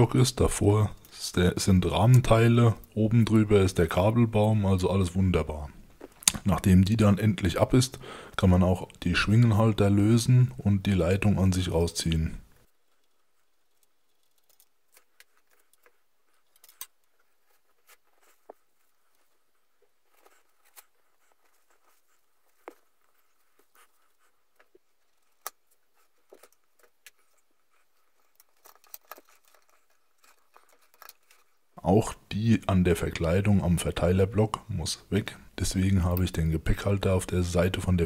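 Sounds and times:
faint clicks and metallic taps: 12.4 - 31.8.

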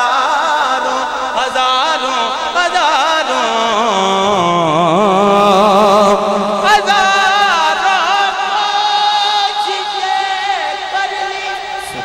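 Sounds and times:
man singing ornamented phrase: 6.7 - 12.0.

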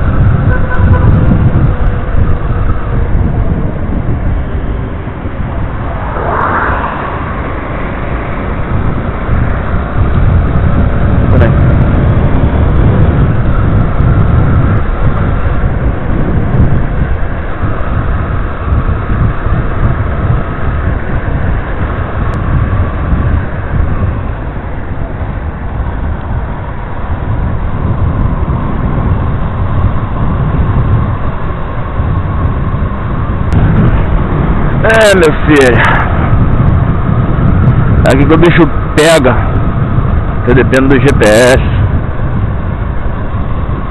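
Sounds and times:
motorcycle engine running: 0.0 - 5.9
wind rumble on microphone: 0.0 - 43.9.

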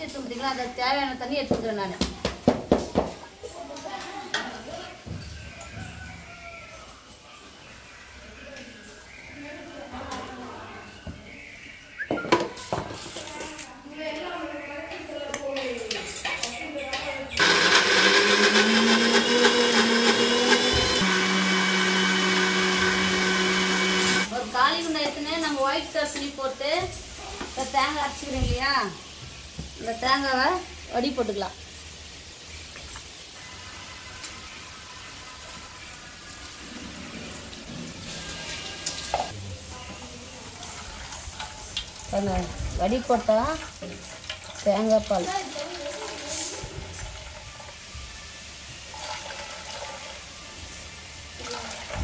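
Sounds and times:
mixer grinder motor running: 17.4 - 24.3
liquid trickling into a metal pot: 48.8 - 50.3.

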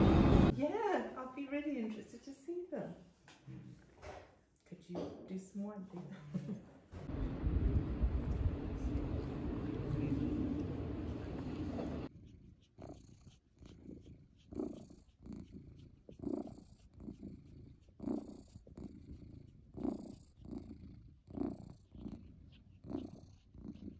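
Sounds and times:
cat purring: 10.8 - 23.9.

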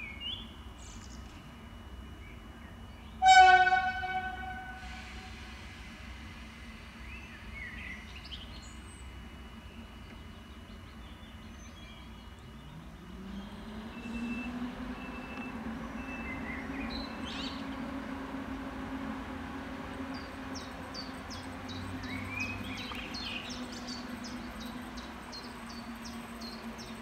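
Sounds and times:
electric train hum: 0.0 - 27.0
train rumbling: 1.0 - 27.0
birds chirping: 19.5 - 27.0.

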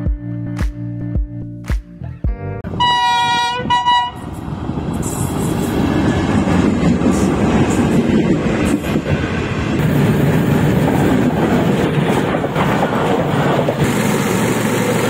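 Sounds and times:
train wheels rumbling on rails: 3.6 - 15.0
rail joint clacks: 4.2 - 15.0.

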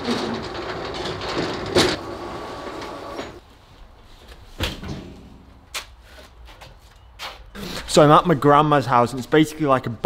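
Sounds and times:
roller shutter door rattling: 0.0 - 3.4.

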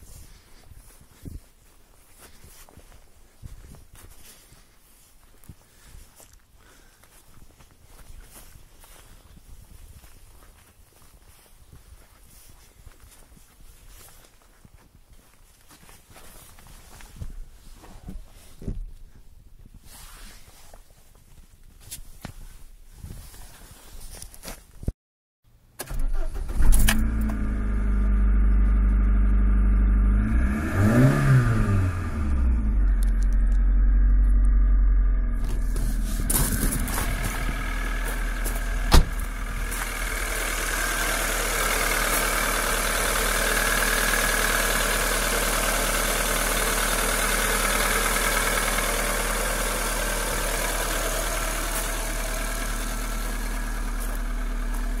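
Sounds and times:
car engine starting and idling: 25.7 - 55.0.

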